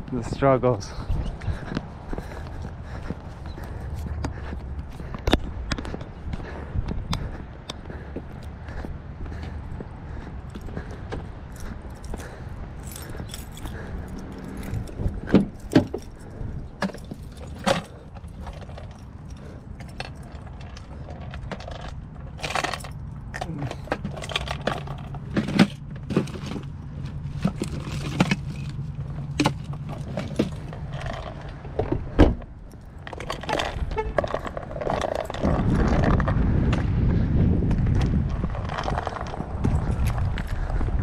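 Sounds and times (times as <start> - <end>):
keys jangling: 11.5 - 20.8.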